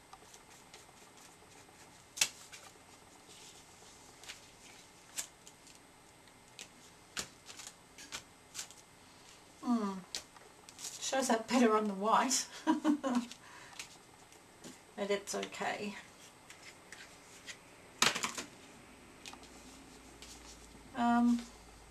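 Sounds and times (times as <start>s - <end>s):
paper crinkling: 6.5s - 9.4s.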